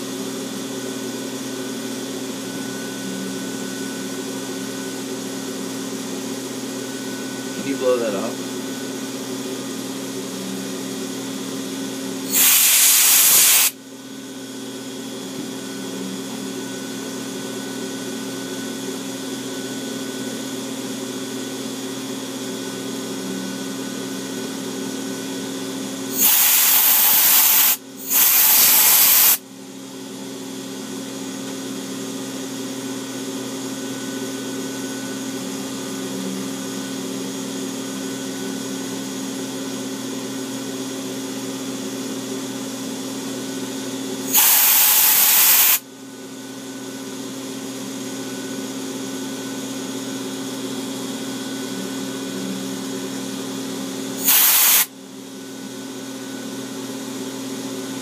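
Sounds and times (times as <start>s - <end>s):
compressed air blasts: 12.3s - 13.8s, 26.2s - 29.4s, 44.3s - 45.8s, 54.2s - 54.9s.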